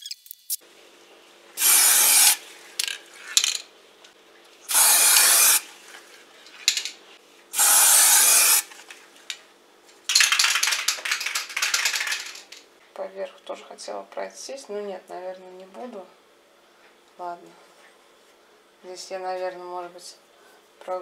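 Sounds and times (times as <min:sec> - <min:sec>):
spray paint can hissing: 0:01.6 - 0:02.4, 0:04.7 - 0:05.6, 0:07.6 - 0:08.7, 0:10.1 - 0:12.3
rapid clattering rattle: 0:10.1 - 0:12.6.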